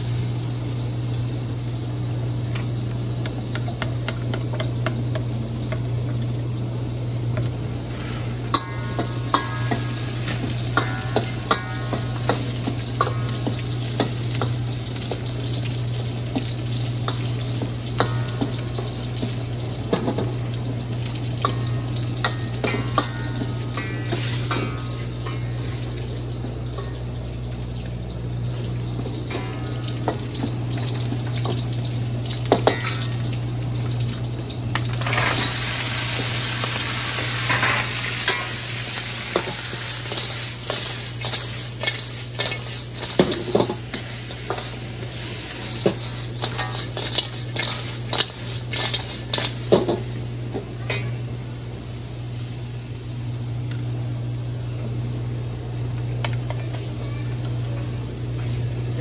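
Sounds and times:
food sizzling in a pan: 0.0 - 59.0
steady low hum: 0.0 - 59.0
utensil scraping a pan: 45.8 - 49.6.

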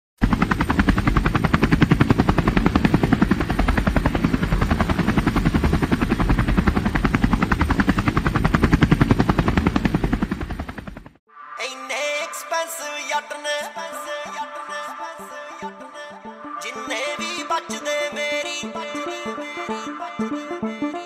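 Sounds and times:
helicopter rotor chopping: 0.2 - 11.2.

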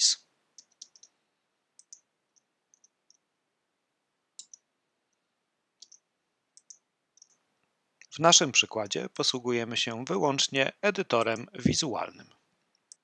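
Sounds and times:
computer mouse clicks: 0.6 - 1.2, 1.8 - 3.2, 4.4 - 4.7, 5.8 - 6.0, 6.6 - 7.4, 12.7 - 13.0.

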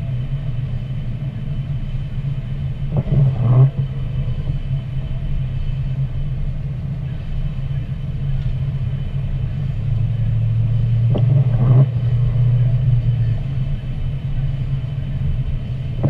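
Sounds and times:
car engine and road rumble: 0.0 - 16.0.

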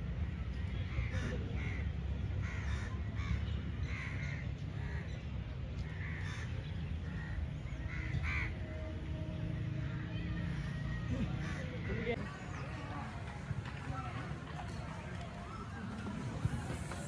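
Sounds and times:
low outdoor rumble: 0.0 - 17.0
crows cawing: 2.4 - 5.1, 5.8 - 8.6.

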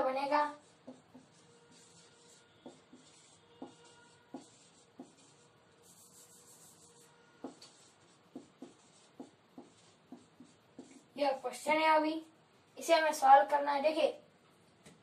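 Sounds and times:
marker writing on whiteboard: 0.0 - 12.0.

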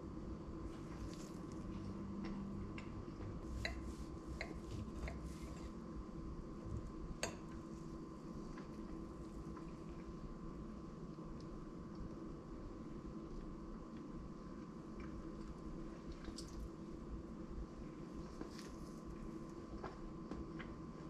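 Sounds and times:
pancake squishing: 0.7 - 1.9.

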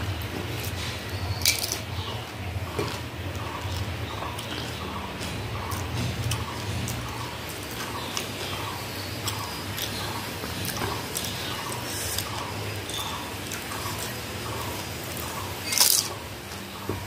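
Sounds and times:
wet chewing: 0.0 - 17.0
mouth clicks and squishes: 0.1 - 17.0.

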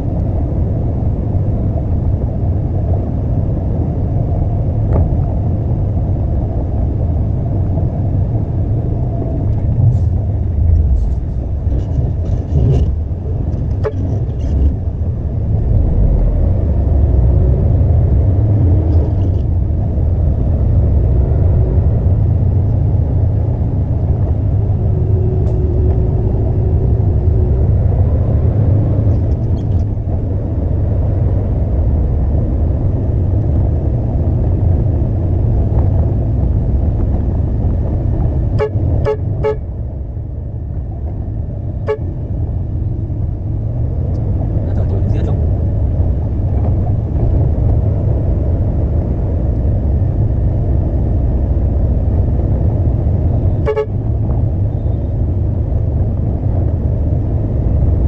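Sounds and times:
diesel truck engine rumbling: 0.0 - 58.0
short horn toots: 53.6 - 54.0.

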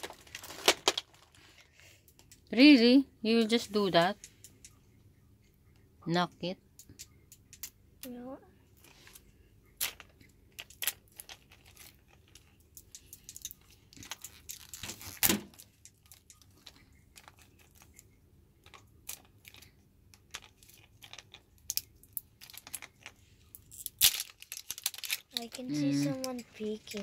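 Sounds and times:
plastic wrapping crinkling: 0.0 - 1.7.

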